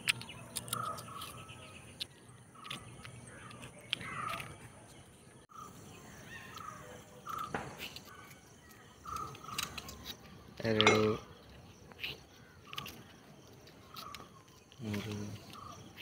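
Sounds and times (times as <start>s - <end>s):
birds chirping: 0.0s - 16.0s
insects chirping: 5.5s - 16.0s.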